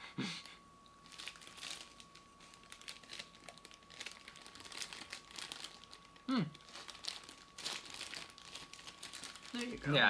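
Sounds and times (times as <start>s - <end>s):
snack packaging crinkling: 1.0s - 10.0s
person humming mm: 6.3s - 6.6s.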